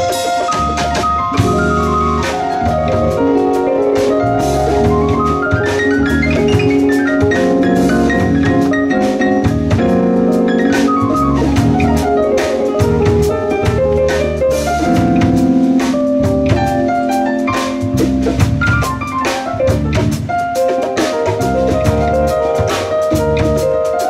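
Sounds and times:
drum kit with cymbals: 0.0 - 24.0
electric bass: 0.0 - 24.0
electric keyboard chords: 0.0 - 24.0.

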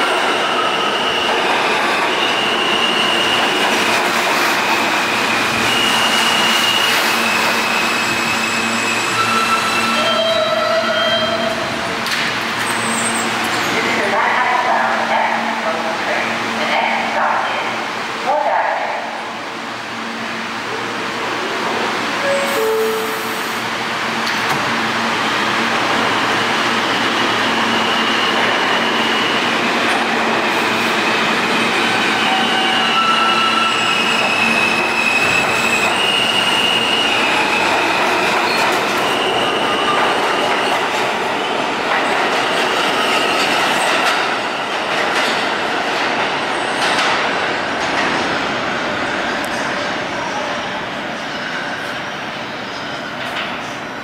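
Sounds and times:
train wheels rumbling on rail: 0.0 - 17.4, 20.6 - 54.0
high-pitched wheel squeals: 5.6 - 11.6.

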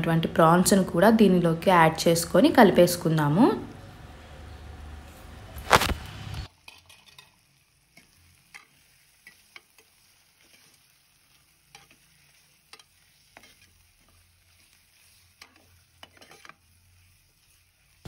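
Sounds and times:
faint sizzling: 0.0 - 18.0
clatter of spatula in pot: 6.6 - 7.4, 8.0 - 10.8, 11.7 - 14.2, 15.3 - 16.7
metal spatula scraping pot: 6.6 - 7.4, 8.0 - 17.7.

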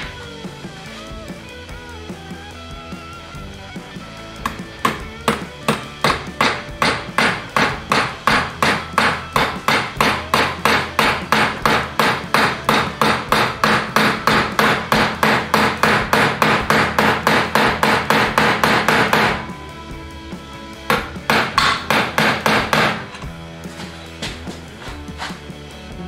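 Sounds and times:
hammer tapping on metal: 4.4 - 19.4, 20.9 - 23.3.

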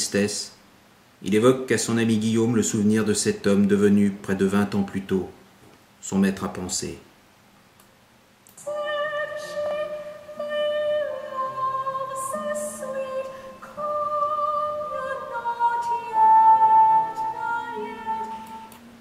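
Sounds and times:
person narrating: 1.2 - 5.4, 6.0 - 7.1
slow music with high held notes: 8.6 - 19.0.

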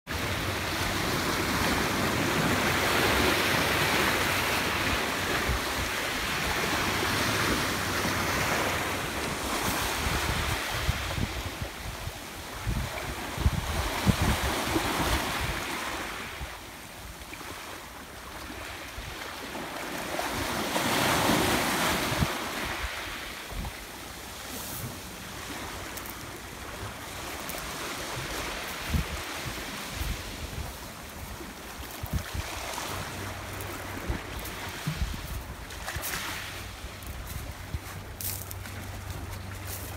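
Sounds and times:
wind buffeting microphone: 0.3 - 15.8, 26.7 - 39.9.

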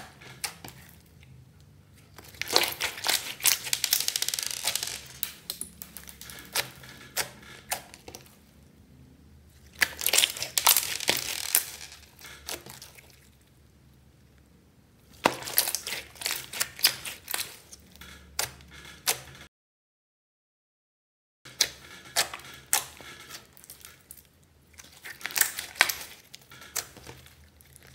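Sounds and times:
slime squishing with clicks and pops: 2.1 - 8.4, 9.6 - 13.2, 15.0 - 19.2, 21.5 - 27.9.

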